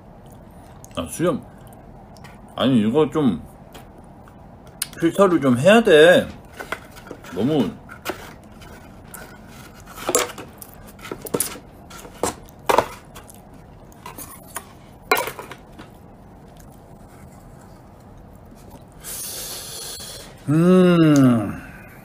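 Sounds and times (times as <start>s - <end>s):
plastic fork scraping containers: 6.5s - 13.3s.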